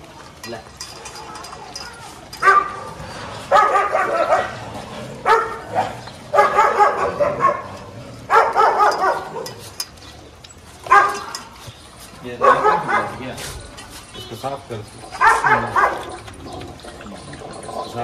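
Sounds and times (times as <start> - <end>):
dog barking: 2.4 - 2.9, 3.5 - 4.6, 5.2 - 7.7, 8.3 - 9.6, 10.9 - 11.3, 12.4 - 13.2, 15.2 - 16.1.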